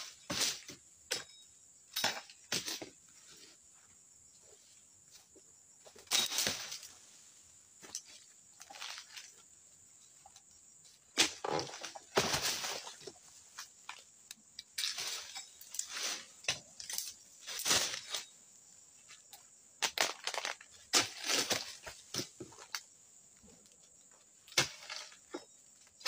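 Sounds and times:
rustling and crunching foliage: 6.0 - 10.1, 11.2 - 14.1, 14.7 - 18.4, 19.1 - 22.9.

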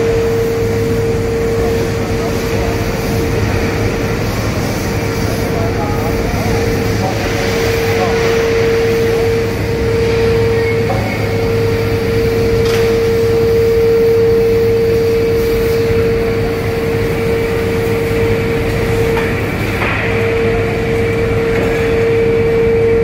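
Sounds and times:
constant mid-pitched whine: 0.0 - 23.0
low industrial hum: 0.0 - 23.0.

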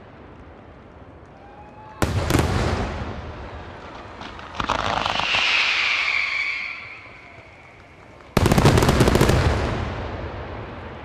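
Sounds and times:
faint fireworks crackles: 0.0 - 11.0
fireworks rumble and echo: 0.0 - 11.0
rising firework whistle: 4.4 - 9.2.

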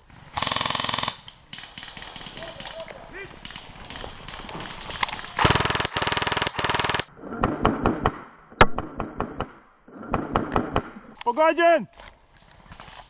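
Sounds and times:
airsoft rifle full-auto bursts: 0.4 - 1.2, 5.4 - 7.1
sharp single shots: 5.3 - 7.1.

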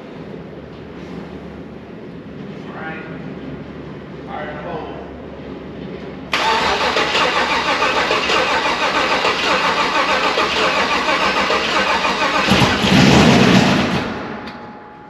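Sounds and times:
engine starter cranking: 6.3 - 14.7
engine firing: 6.3 - 15.0.

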